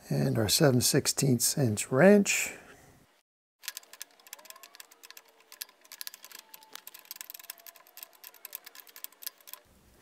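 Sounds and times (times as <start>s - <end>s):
wrench clicking on metal bolt: 3.6s - 9.7s.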